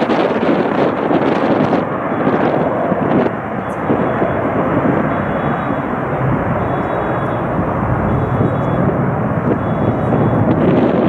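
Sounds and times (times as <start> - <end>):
jet engines climbing away: 0.0 - 11.0.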